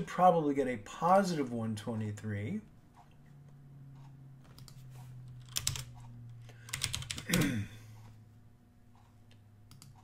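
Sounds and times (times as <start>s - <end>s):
steady low hum: 0.0s - 10.0s
computer keyboard keys clicking: 5.4s - 6.0s, 6.6s - 7.4s, 9.3s - 10.0s.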